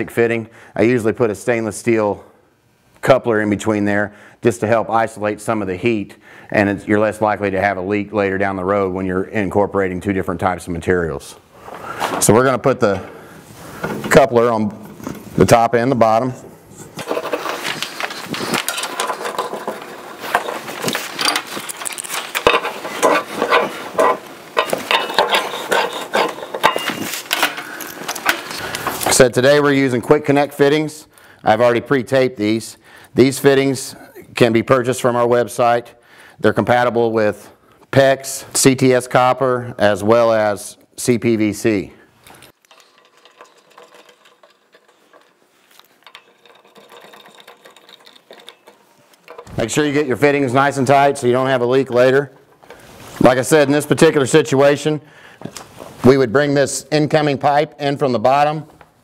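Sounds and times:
metal parts clicking and clinking: 17.0 - 29.2, 42.3 - 49.9.

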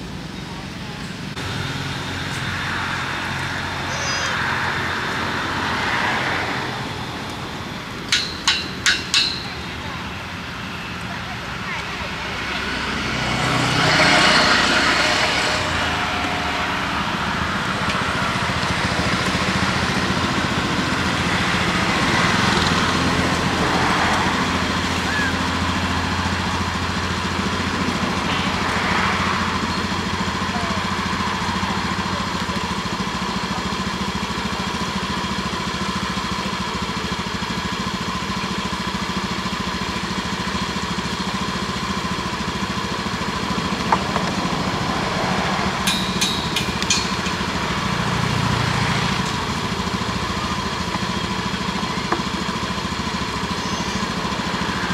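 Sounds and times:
small engine running: 0.0 - 54.9.

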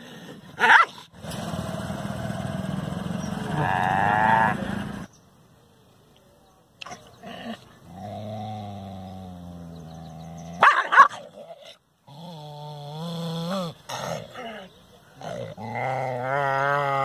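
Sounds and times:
dog barking: 0.6 - 1.0, 10.6 - 11.2
dog growling: 7.2 - 10.6, 11.2 - 17.0.

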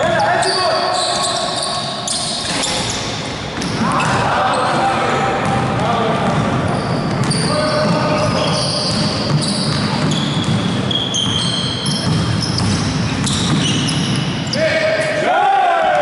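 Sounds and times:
shoes squeaking on hardwood: 0.2 - 3.8, 6.7 - 14.6
basketball bouncing: 5.4 - 14.4.

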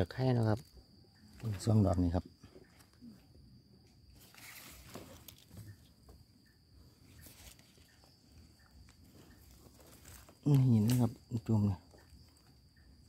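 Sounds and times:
high insect drone: 0.0 - 13.0
rustling dry grass and leaves: 4.1 - 6.2, 6.9 - 12.7.

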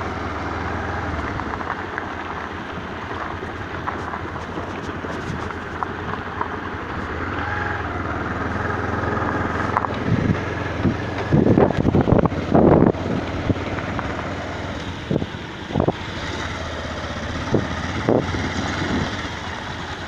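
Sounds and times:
motorcycle engine running: 0.0 - 20.0
wind buffeting microphone: 0.0 - 20.0.

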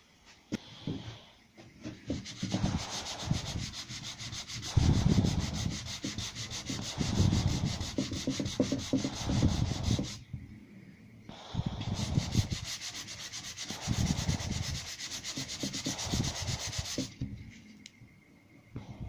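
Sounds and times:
sanding block rubbing painted wood: 1.9 - 10.2, 11.7 - 17.3.

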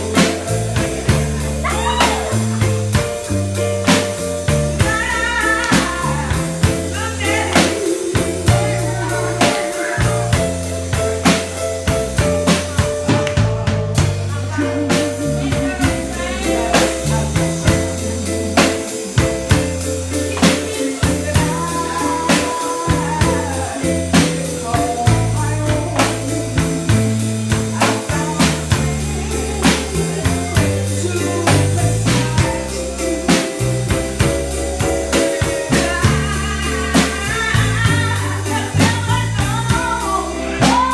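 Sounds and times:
band accompaniment: 0.0 - 40.9
bass line: 0.0 - 40.9
steady drum beat: 0.0 - 40.9
woman singing into a microphone: 4.8 - 11.1, 14.0 - 34.0, 34.8 - 40.9.

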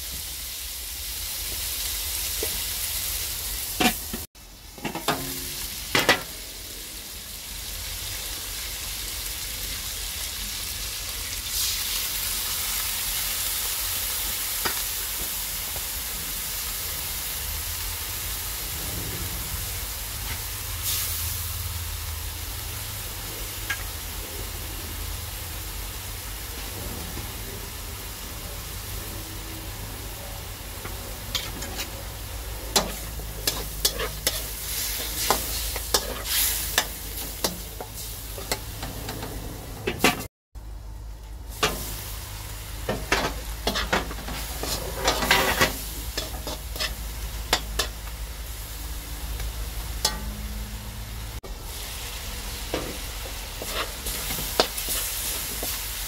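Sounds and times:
chicken wings sizzling in wok: 0.0 - 56.0
spatula clanking against wok: 4.8 - 6.3, 32.7 - 40.3, 42.9 - 48.2, 50.0 - 50.5.

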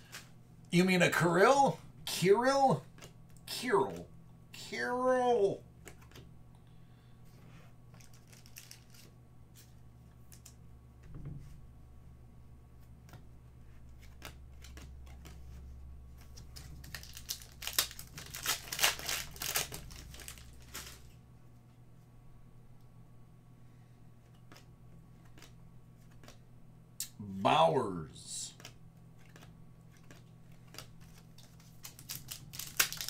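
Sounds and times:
foil wrapper crinkling: 8.0 - 9.1, 16.2 - 21.1, 29.2 - 33.0.

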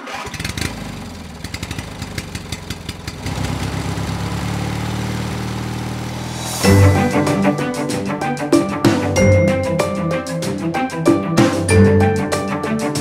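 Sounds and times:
auto-rickshaw engine: 0.0 - 6.6.

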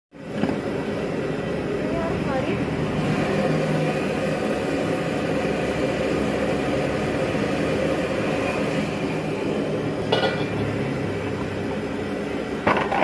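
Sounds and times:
gas burner roaring: 0.1 - 13.0.

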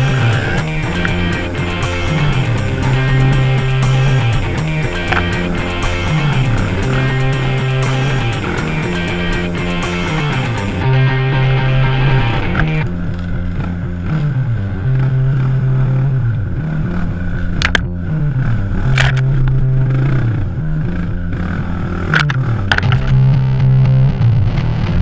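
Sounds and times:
sharp clacks: 0.0 - 10.8
motorcycle engine revving: 0.0 - 25.0.

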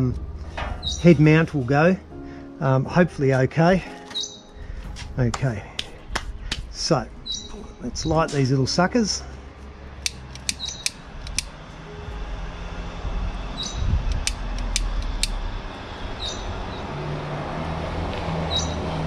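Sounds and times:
low steady rumble: 6.0 - 16.7
lighter clicking: 10.0 - 11.5, 14.1 - 15.4.

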